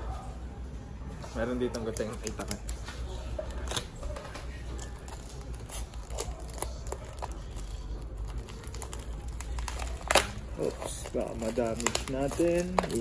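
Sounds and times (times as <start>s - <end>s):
plastic crinkling: 2.0s - 13.0s
scissors snipping plastic: 3.4s - 13.0s.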